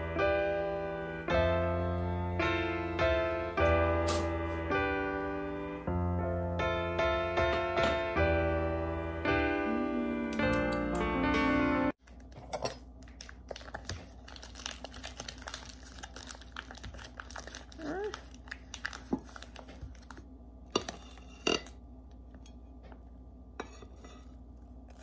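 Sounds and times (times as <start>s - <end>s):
plastic bag crinkling: 12.0s - 20.2s.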